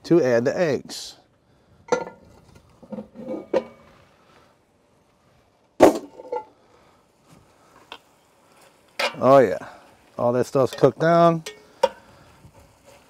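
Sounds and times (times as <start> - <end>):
metal lid clinking and knocking: 1.9 - 3.8.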